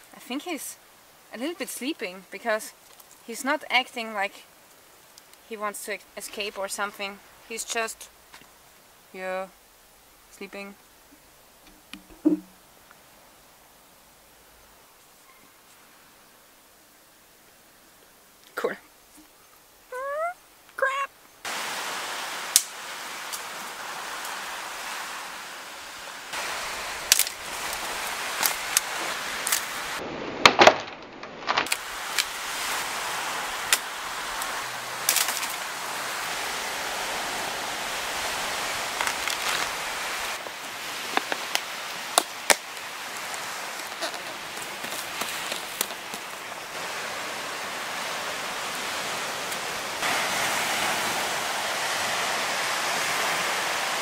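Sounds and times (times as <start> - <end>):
wind: 0.0 - 54.0
surf on a beach: 19.9 - 30.4, 31.6 - 54.0
clicks and knocks in sand: 38.8 - 46.9.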